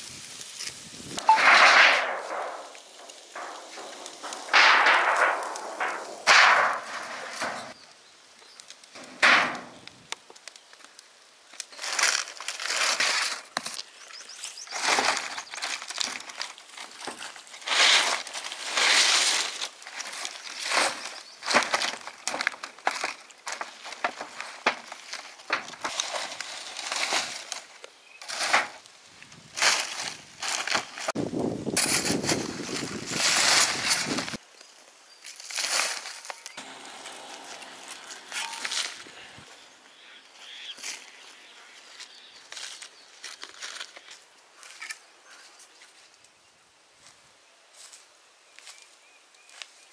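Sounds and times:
hoe scraping soil: 0:00.0 - 0:07.8, 0:14.2 - 0:28.8, 0:29.5 - 0:34.4, 0:35.4 - 0:39.7
palm fronds rustling: 0:00.0 - 0:46.4, 0:47.0 - 0:49.9
metal sheet scraping: 0:01.2 - 0:07.8, 0:09.0 - 0:09.8, 0:36.6 - 0:39.5.

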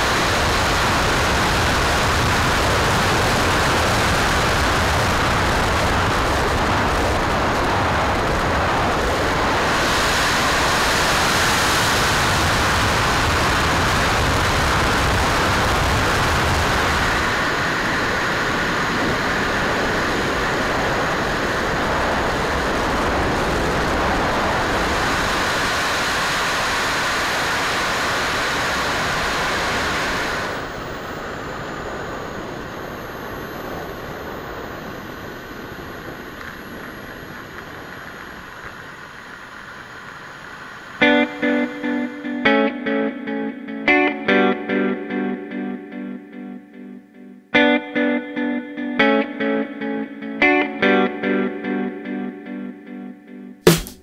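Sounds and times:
high whines falling in pitch: 0:00.0 - 0:39.2, 0:39.9 - 0:46.2
model airplane motor and rushing air: 0:00.0 - 0:41.2.

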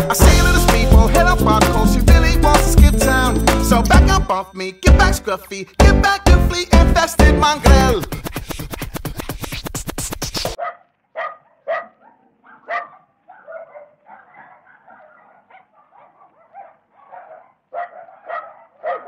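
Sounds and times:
dogs barking: 0:10.6 - 0:19.0
dogs yapping: 0:10.6 - 0:19.0.

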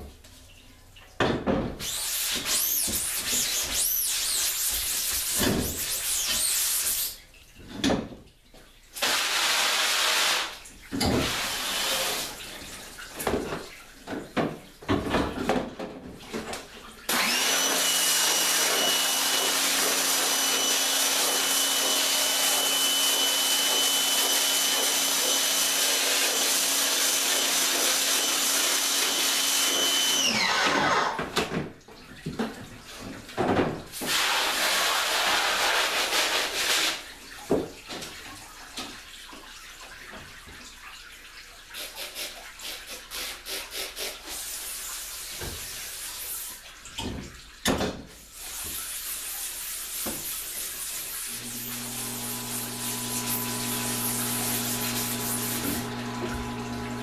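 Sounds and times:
water spraying in short bursts: 0:01.8 - 0:07.4, 0:08.9 - 0:13.8, 0:33.8 - 0:37.5, 0:41.6 - 0:46.9, 0:48.2 - 0:57.0
pressure washer spraying: 0:09.0 - 0:10.6, 0:17.1 - 0:30.2, 0:34.0 - 0:37.0, 0:48.5 - 0:57.0.

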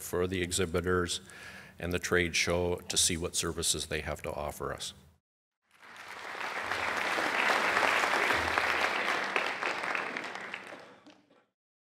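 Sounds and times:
audience applause: 0:05.7 - 0:11.4.

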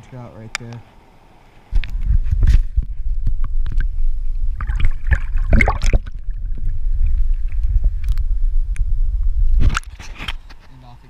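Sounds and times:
muffled underwater river rushing: 0:01.0 - 0:10.2
water splashes: 0:03.3 - 0:08.2.

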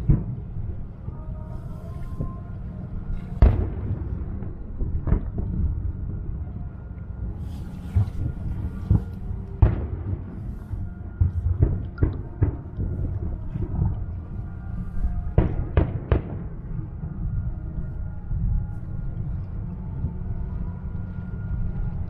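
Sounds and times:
distant fireworks booming: 0:00.0 - 0:00.9, 0:03.1 - 0:17.4
low steady rumble: 0:00.0 - 0:22.0.

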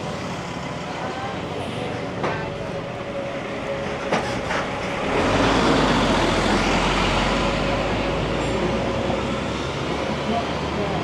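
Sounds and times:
vehicle passing close by: 0:05.0 - 0:10.3.

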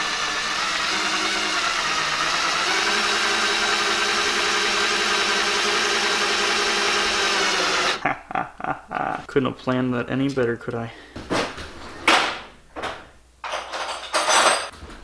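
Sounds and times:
cordless drill running under load: 0:00.0 - 0:08.0.

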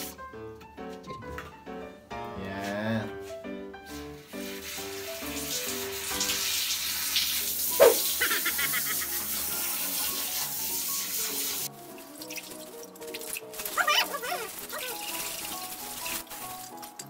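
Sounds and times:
background music: 0:00.0 - 0:17.0
water spraying from shower sprayer: 0:03.9 - 0:17.0.

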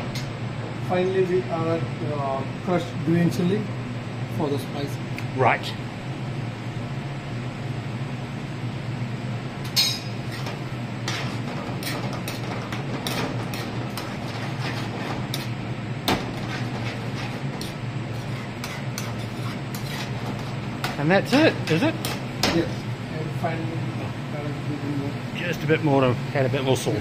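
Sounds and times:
ventilation hum: 0:00.0 - 0:27.0
metal spoon scraping frying pan: 0:10.1 - 0:15.6, 0:16.3 - 0:21.0.

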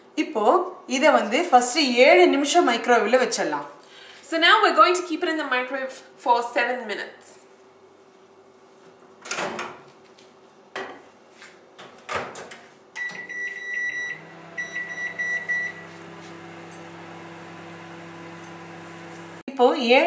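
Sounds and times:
keypad beeps: 0:13.0 - 0:15.8
microwave oven humming: 0:13.0 - 0:19.4.

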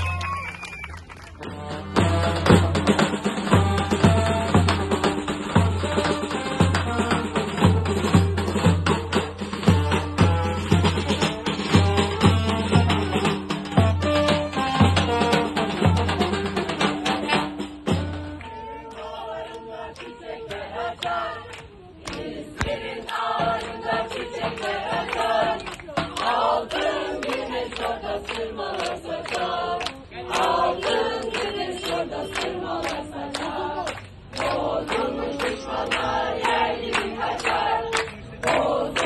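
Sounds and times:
crowd singing in chorus: 0:17.2 - 0:39.0.

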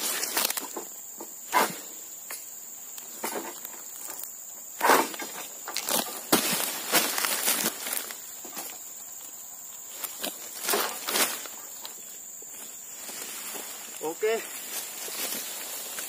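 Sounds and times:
sickle scraping palm fronds: 0:00.0 - 0:00.9, 0:03.2 - 0:08.8, 0:09.8 - 0:11.9, 0:12.8 - 0:16.0
high-pitched insect drone: 0:00.0 - 0:16.0.

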